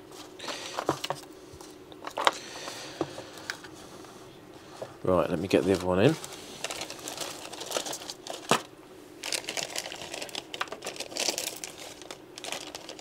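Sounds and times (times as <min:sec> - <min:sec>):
plastic bag crinkling: 0:05.3 - 0:13.0.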